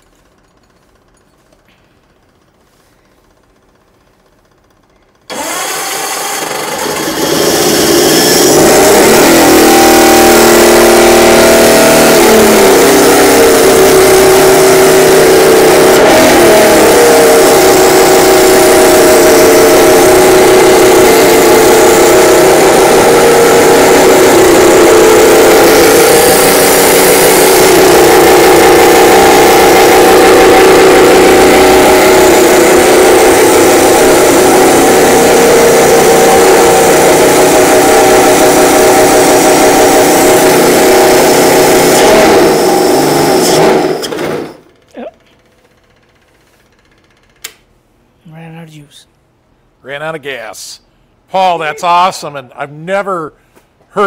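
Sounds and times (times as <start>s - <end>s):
snowmobile engine revving: 5.3s - 44.5s.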